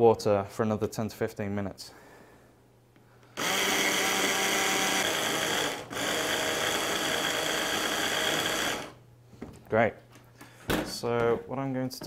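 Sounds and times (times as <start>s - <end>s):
electric hand blender chopping: 3.4s - 9.0s.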